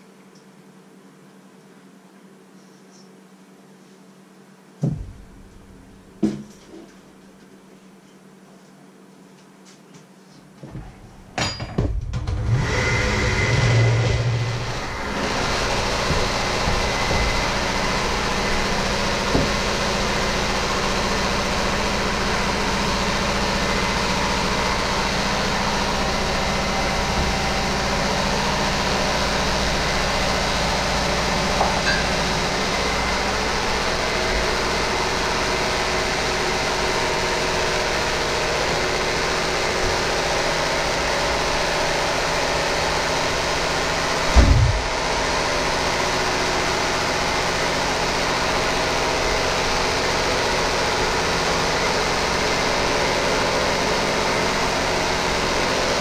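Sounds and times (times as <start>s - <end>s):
electric hand mixer whirring: 12.5s - 20.3s.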